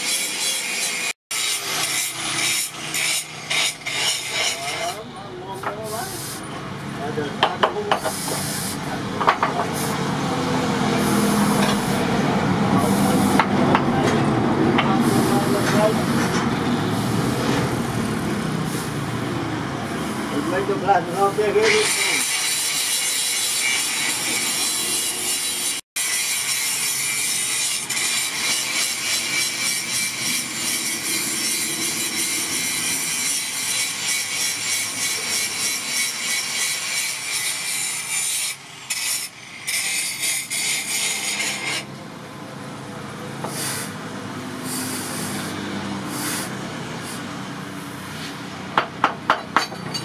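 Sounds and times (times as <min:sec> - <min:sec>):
hot steel hissing in water: 0:05.8 - 0:06.5, 0:08.0 - 0:08.8, 0:19.8 - 0:41.8, 0:43.4 - 0:44.0, 0:44.6 - 0:48.4.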